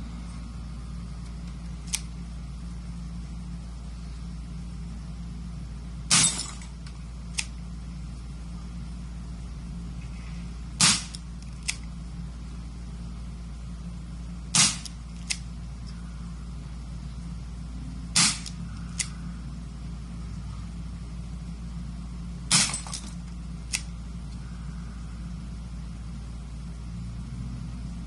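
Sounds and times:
pistol shots: 14.5 - 14.9, 18.2 - 18.5.

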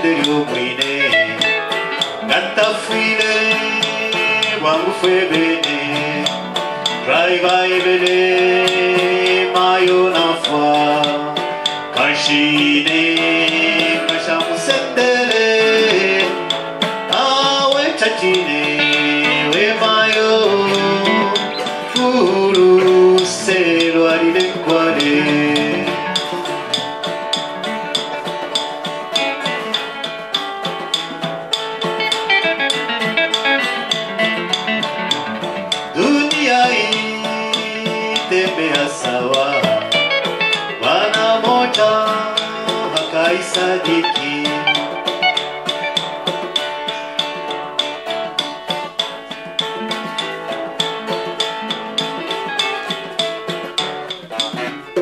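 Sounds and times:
fingerpicked acoustic guitar: 0.0 - 55.0.

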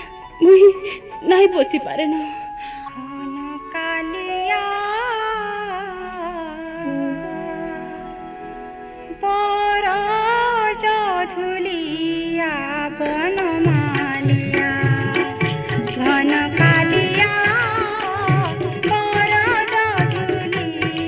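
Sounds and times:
wavering melody line: 6.8 - 9.4
held drone-like chord: 6.8 - 10.2
drum beats: 13.0 - 21.0.

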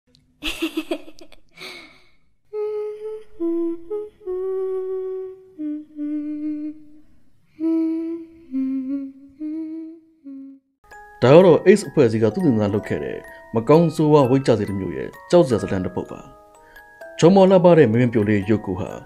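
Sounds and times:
person humming a slow tune: 2.5 - 10.7.

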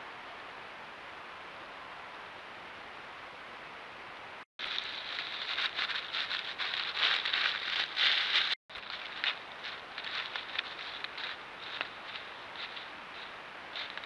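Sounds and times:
faint steady hiss: 0.0 - 14.0
crackling rustle of leaves: 4.6 - 14.0.

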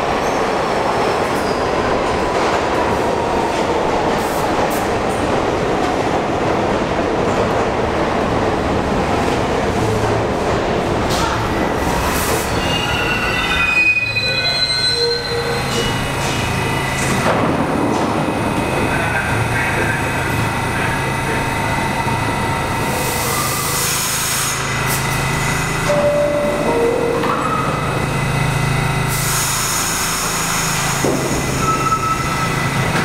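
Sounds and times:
train wheels and brakes squealing: 12.0 - 17.3, 29.1 - 33.0.

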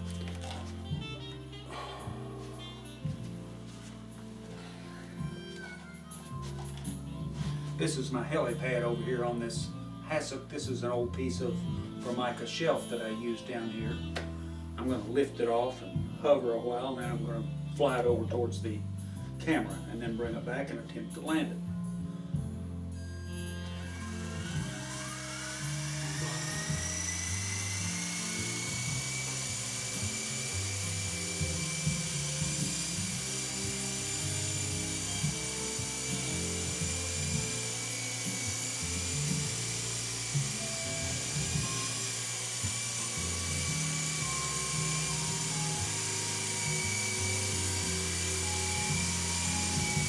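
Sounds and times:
background music: 0.0 - 50.0
toy helicopter motor whine: 23.2 - 50.0.

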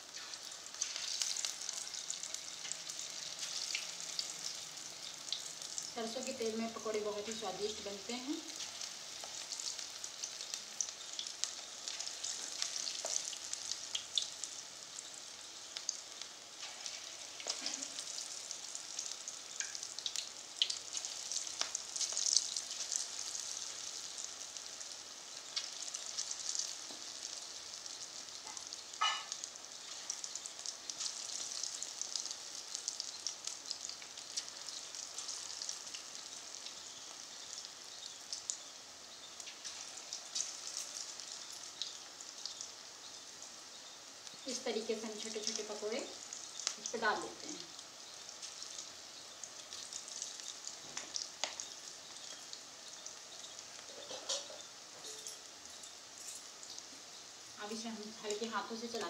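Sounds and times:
batter deep-frying in oil: 0.0 - 59.0
oil pops and crackles: 49.4 - 54.6.

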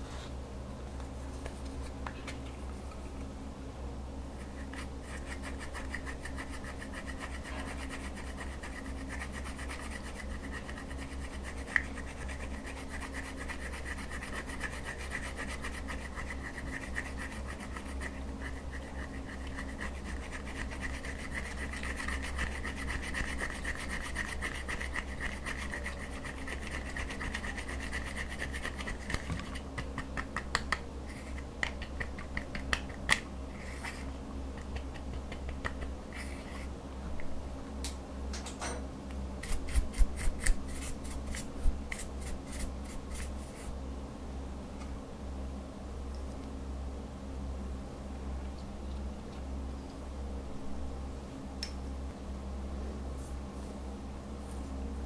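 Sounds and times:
spatula scraping powder: 39.4 - 43.7.

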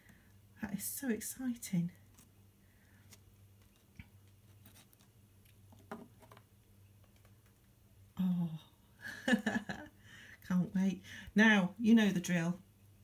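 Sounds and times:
faint low hum: 0.0 - 13.0
plastic pots tapping on table: 5.8 - 6.4.

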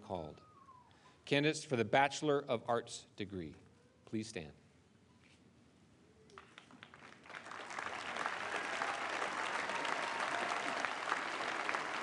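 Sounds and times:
audience applause: 6.4 - 12.0.

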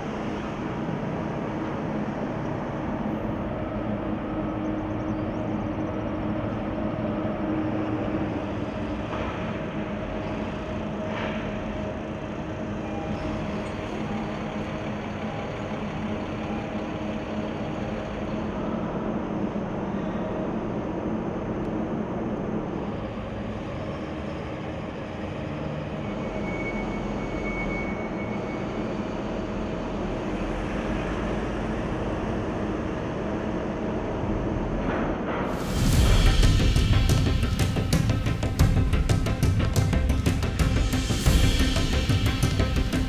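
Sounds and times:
diesel truck engines running: 0.0 - 43.0
low machinery hum: 0.0 - 43.0
faint high whistle: 12.7 - 15.7, 26.0 - 29.2.

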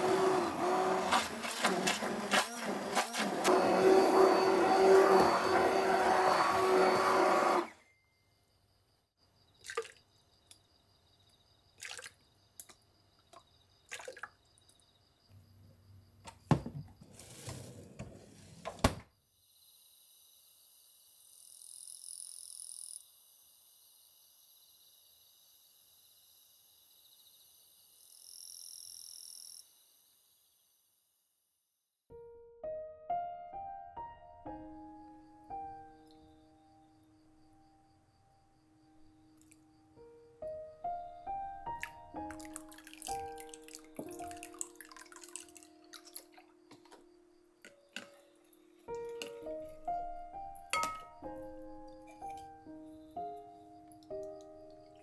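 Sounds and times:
stick blender: 0.0 - 7.8
night insects chorus: 19.3 - 31.4
knocks and clinks: 50.7 - 51.2.

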